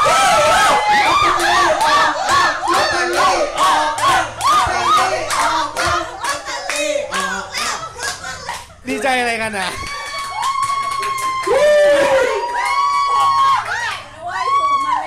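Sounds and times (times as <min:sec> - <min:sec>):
people clapping in time: 0:00.0 - 0:07.0, 0:09.9 - 0:14.2.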